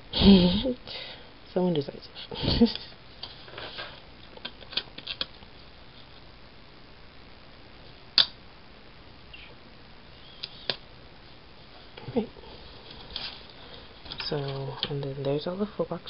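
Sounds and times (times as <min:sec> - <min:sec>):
paper sticker crinkling: 0:03.2 - 0:05.4.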